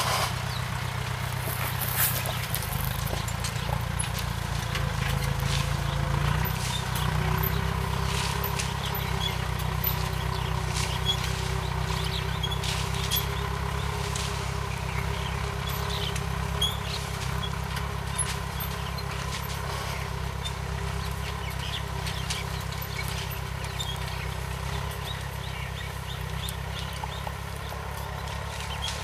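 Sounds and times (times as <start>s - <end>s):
tractor engine running: 0.0s - 29.0s
bird chirps: 20.4s - 29.0s.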